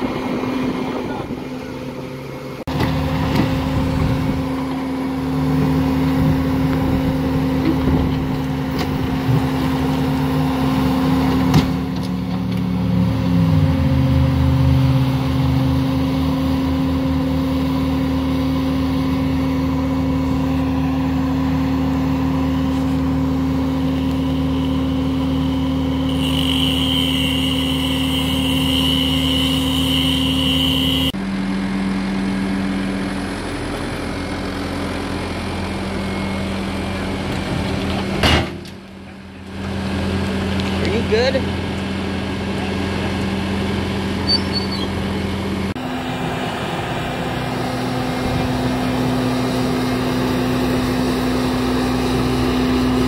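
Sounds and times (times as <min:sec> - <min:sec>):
high steady whine: 0:00.0 - 0:37.2
diesel engine running: 0:00.0 - 0:53.0.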